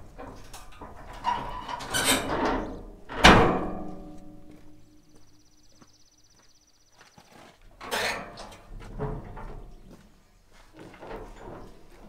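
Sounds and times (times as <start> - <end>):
steel frame scraping: 0.0 - 4.4, 7.8 - 9.8
loud metallic clang: 1.5 - 4.8.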